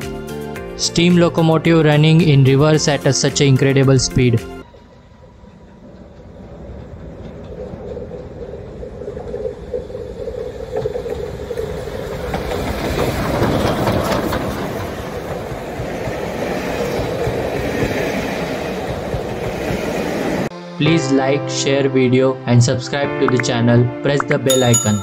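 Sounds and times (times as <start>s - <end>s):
coaches rolling on rails: 4.6s - 20.5s
steam locomotive passing: 4.6s - 20.5s.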